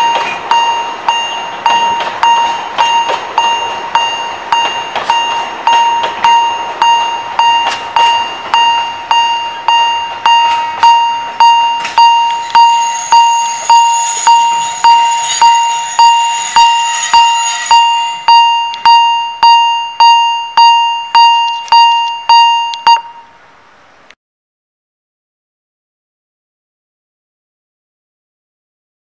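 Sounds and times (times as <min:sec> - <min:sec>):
level crossing bell ringing: 0:00.0 - 0:23.2
faint high whine: 0:00.0 - 0:24.2.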